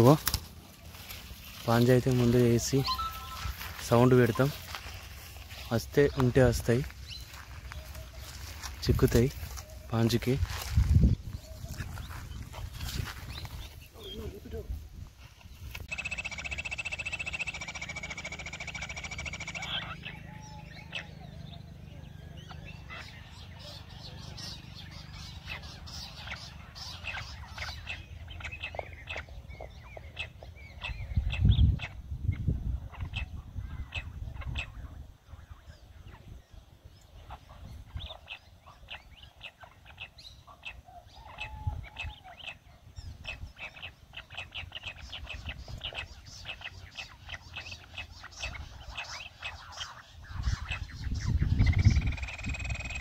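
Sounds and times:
quail chirping: 0:00.0 - 0:14.6, 0:15.6 - 0:53.0
whistled bird note: 0:02.8 - 0:03.6
quail call through small speaker: 0:15.9 - 0:21.4, 0:39.6 - 0:42.6, 0:46.6 - 0:53.0.

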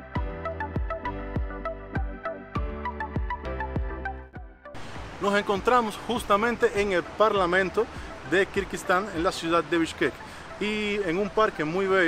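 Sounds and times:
electronic music with deep beat: 0:00.0 - 0:04.8.

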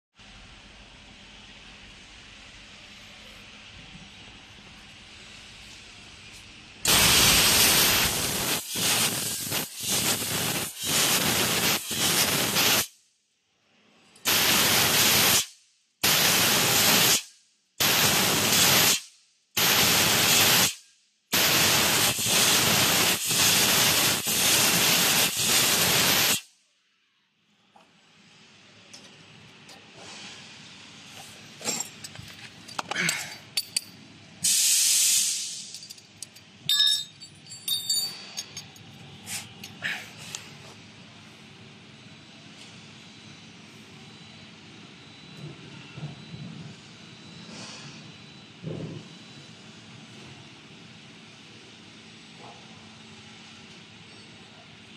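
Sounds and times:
gas jet hissing loudly: 0:06.9 - 0:12.9, 0:14.3 - 0:15.4, 0:21.4 - 0:26.4, 0:34.4 - 0:35.7.

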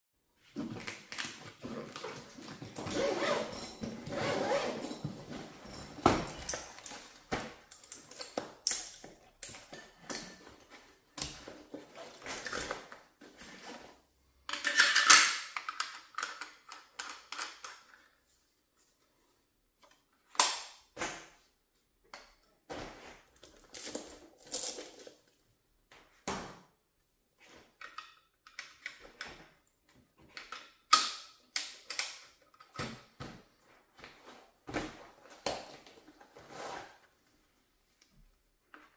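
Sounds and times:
clicks and knocks of rifle parts: 0:05.9 - 0:10.6, 0:14.5 - 0:18.1, 0:27.6 - 0:29.5.

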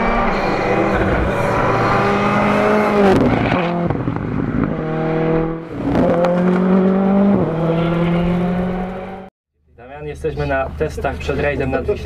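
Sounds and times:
rally car engine revving past: 0:00.0 - 0:09.3.

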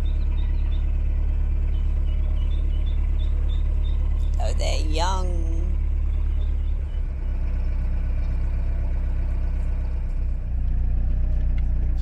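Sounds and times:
boat engine throbbing: 0:00.0 - 0:09.5.

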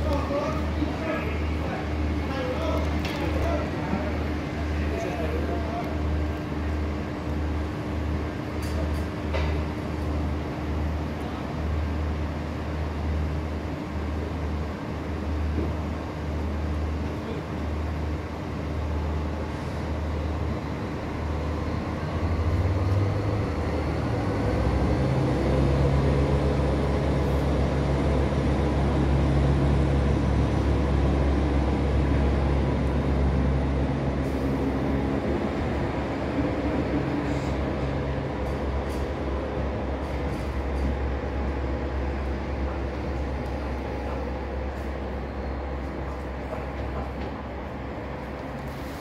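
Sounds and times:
diesel train engines droning: 0:00.0 - 0:49.0.

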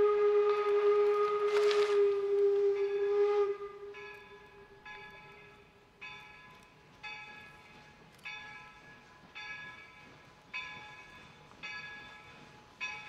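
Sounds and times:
locomotive bell ringing: 0:02.7 - 0:13.0.

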